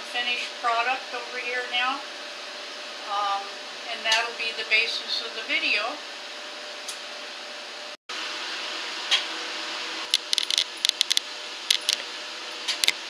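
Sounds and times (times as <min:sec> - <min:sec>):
glass beads clicking together: 0:10.2 - 0:12.0.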